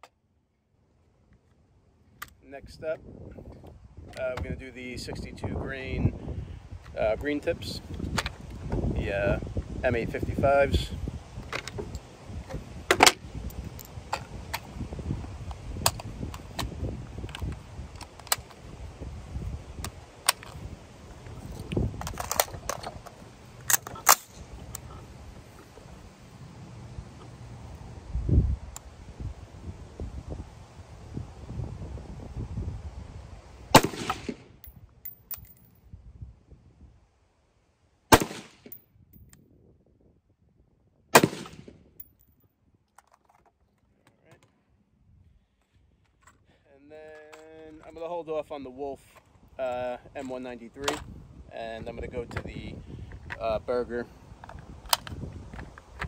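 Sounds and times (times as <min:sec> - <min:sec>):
rifle handling clicks: 0:15.8 - 0:18.6, 0:19.8 - 0:20.6, 0:23.6 - 0:24.9, 0:54.4 - 0:55.2
rifle shot with echo: 0:33.7 - 0:34.5, 0:38.1 - 0:38.8, 0:41.1 - 0:41.7.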